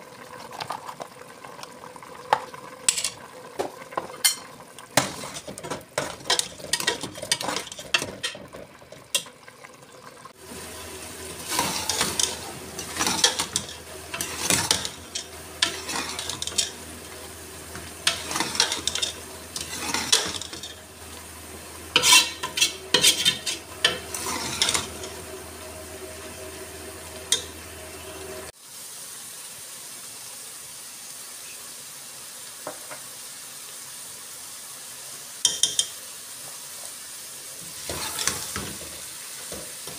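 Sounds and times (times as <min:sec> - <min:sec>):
ladle scraping and clinking in pot: 0:02.9 - 0:03.2, 0:04.0 - 0:09.3, 0:11.5 - 0:20.9, 0:21.9 - 0:25.3, 0:27.3 - 0:27.6
hiss from cooking pot: 0:10.3 - 0:21.2, 0:28.3 - 0:39.9.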